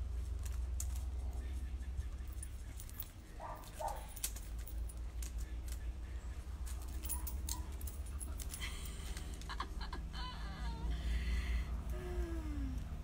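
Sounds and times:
steady low hum: 0.0s - 13.0s
metallic jingling: 0.7s - 9.5s.

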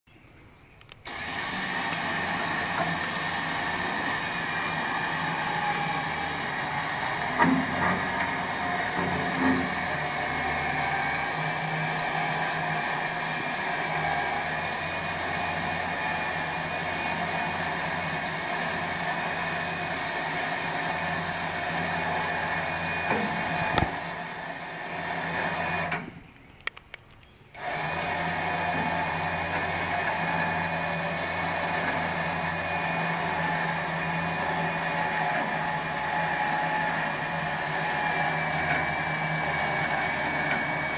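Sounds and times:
loader motor running: 0.8s - 26.8s, 27.5s - 40.9s
clicks: 25.9s - 27.4s.

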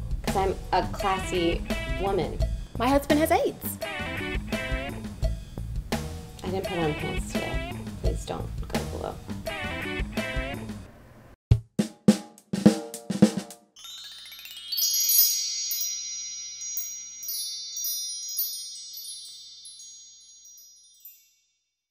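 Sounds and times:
music hits: 0.0s - 10.9s, 12.7s - 21.2s
wind chime glissando: 13.8s - 21.9s.

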